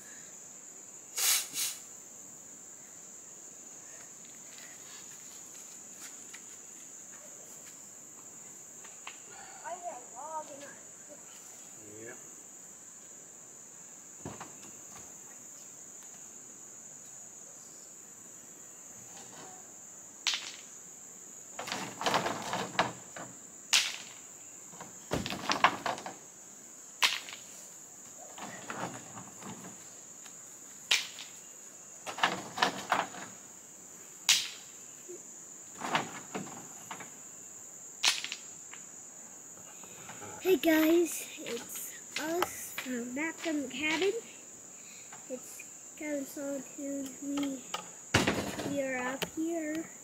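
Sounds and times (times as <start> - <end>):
high-pitched insect chorus: 0.0 - 50.0
rocks clattering in truck bed: 21.6 - 26.2, 28.4 - 29.8, 32.0 - 33.4, 35.7 - 37.2, 48.1 - 49.4.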